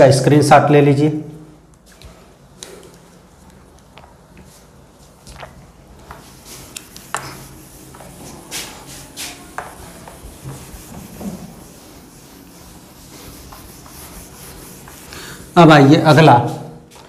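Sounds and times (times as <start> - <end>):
cloth rubbing whiteboard: 4.4 - 17.0.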